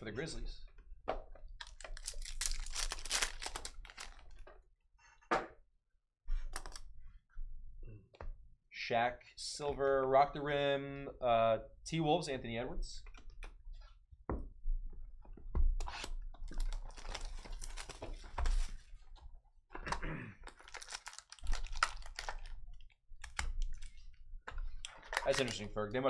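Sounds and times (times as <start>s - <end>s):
card packs clicking and rustling: 1.6s - 4.4s, 16.4s - 18.8s, 20.4s - 24.0s, 24.9s - 25.8s.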